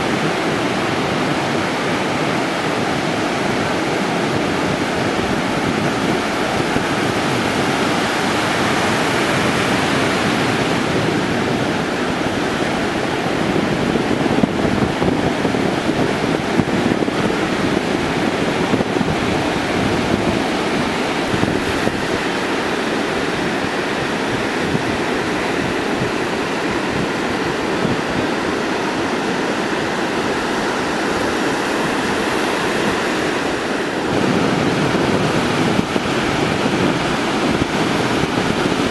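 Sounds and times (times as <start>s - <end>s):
ocean waves breaking: 0.0s - 38.9s
wind buffeting microphone: 0.0s - 38.9s.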